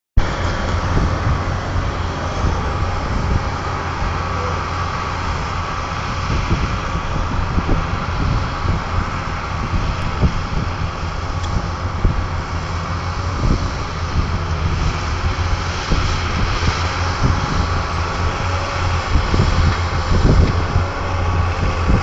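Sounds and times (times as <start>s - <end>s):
tractor diesel engines droning: 0.2s - 22.0s
wind rumble on microphone: 0.2s - 22.0s.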